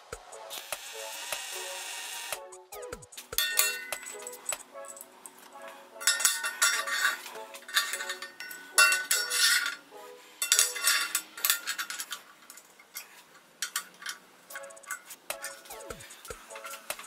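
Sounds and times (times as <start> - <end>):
soft background music: 0.0 - 12.2, 14.0 - 17.0
metal blocks clinking and scraping: 3.4 - 17.0.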